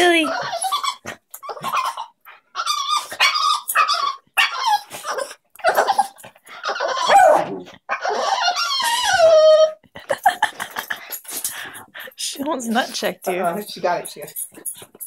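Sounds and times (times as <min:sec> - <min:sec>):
dog whining and yipping: 0:00.0 - 0:09.8.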